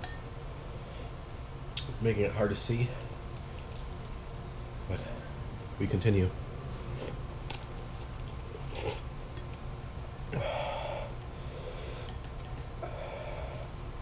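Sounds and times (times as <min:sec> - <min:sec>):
heavy breaths through nose: 0:10.4 - 0:12.2, 0:12.8 - 0:13.8.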